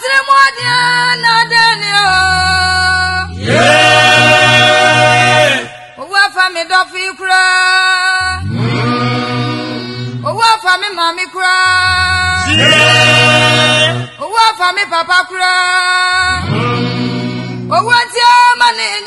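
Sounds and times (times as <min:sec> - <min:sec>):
choir singing: 0:00.1 - 0:06.7, 0:08.2 - 0:10.8, 0:11.7 - 0:15.5, 0:16.2 - 0:18.0.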